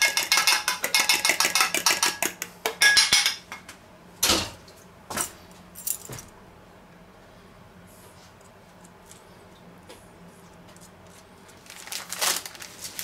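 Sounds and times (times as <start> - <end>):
spoon clinking in metal bowl: 0.0 - 3.4.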